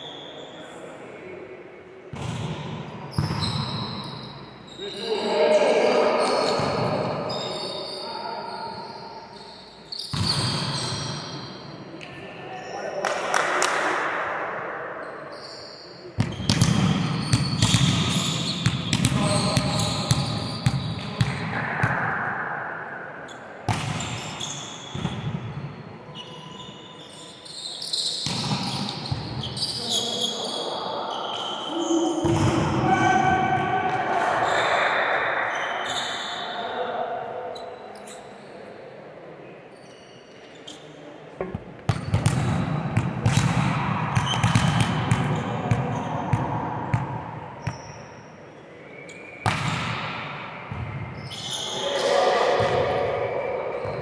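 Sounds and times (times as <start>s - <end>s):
volleyballs struck and bouncing: 2.1s - 3.5s, 16.2s - 22.2s, 23.7s - 25.5s, 28.2s - 29.3s, 32.2s - 32.8s, 41.4s - 47.8s, 49.4s - 51.1s.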